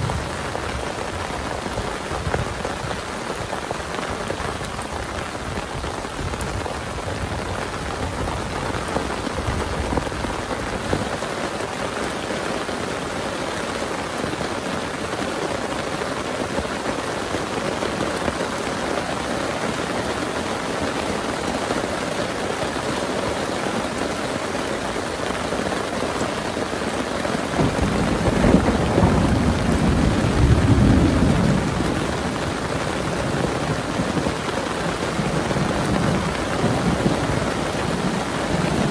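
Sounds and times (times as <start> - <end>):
heavy rain: 0.0 - 38.9
thunder rumbling: 27.6 - 38.9.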